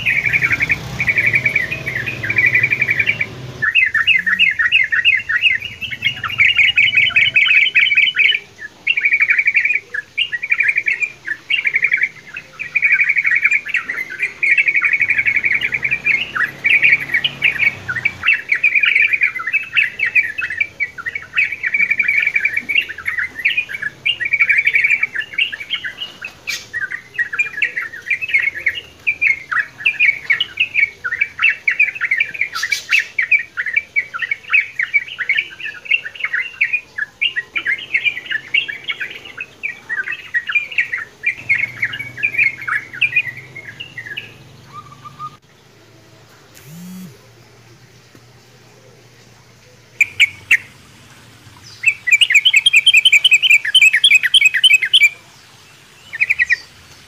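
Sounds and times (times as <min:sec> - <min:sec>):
birds singing chattering notes: 0:00.0 - 0:57.0
sharp clicks: 0:46.6 - 0:47.2.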